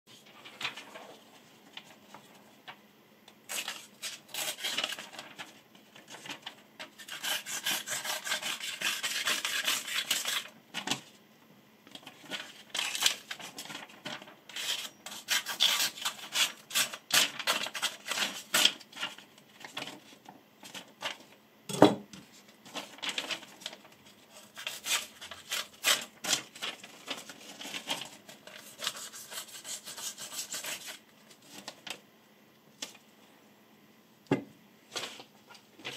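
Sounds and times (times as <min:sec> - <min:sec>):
knife scratching through paper: 0:03.5 - 0:05.0, 0:06.9 - 0:10.5, 0:14.5 - 0:18.8, 0:24.3 - 0:27.8, 0:28.4 - 0:31.0.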